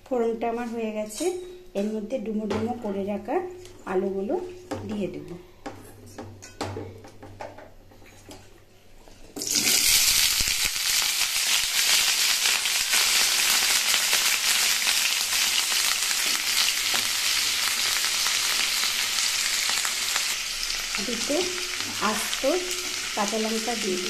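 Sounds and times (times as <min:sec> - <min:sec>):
potatoes sizzling in hot oil: 0:09.4 - 0:24.0.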